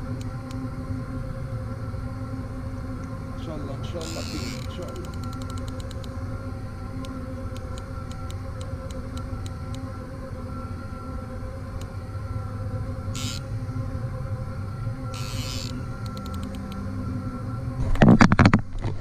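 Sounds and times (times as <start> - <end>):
low mechanical drone: 0.0 - 19.0
fishing reel clicking: 4.0 - 6.1, 15.2 - 16.8.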